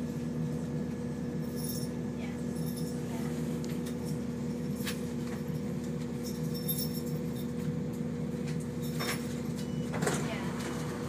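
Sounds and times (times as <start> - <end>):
diesel train engine drone: 0.0 - 11.0.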